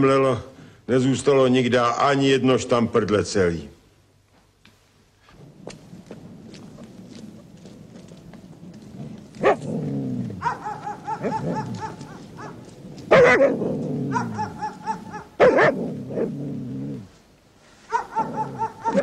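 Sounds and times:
dog barking: 9.4s - 9.7s, 10.4s - 16.3s, 17.9s - 19.0s.

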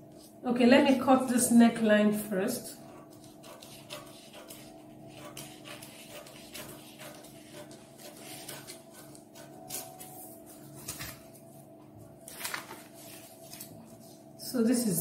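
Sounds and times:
scissors snipping paper: 2.9s - 10.2s
paper rustling: 3.1s - 14.3s.

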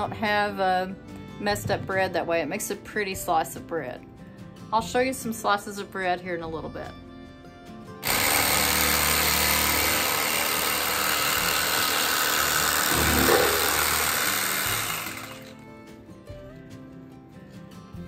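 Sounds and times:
electric knife motor hum: 8.0s - 15.6s
electric knife sawing bread: 8.0s - 15.7s.

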